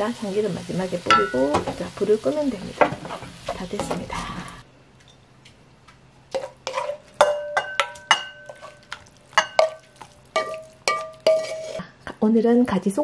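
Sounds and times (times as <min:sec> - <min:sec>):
spatula knocking and clinking on pan: 0:01.1 - 0:01.8, 0:06.4 - 0:11.6.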